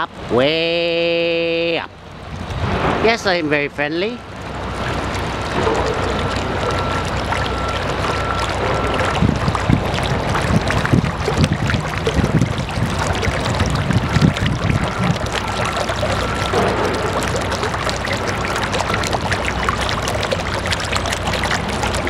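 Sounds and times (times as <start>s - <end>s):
fountain water bubbling and splashing: 0.0s - 22.0s
low water gurgles: 0.0s - 22.0s.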